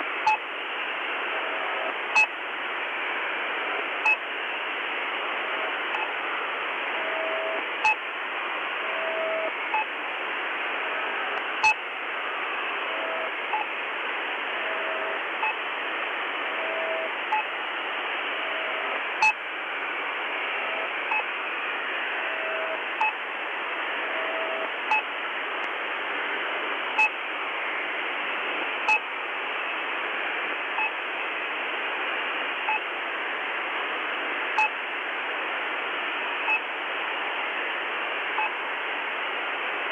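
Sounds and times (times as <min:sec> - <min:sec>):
radio static: 0:00.0 - 0:39.9
short radio pips: 0:03.6 - 0:25.9.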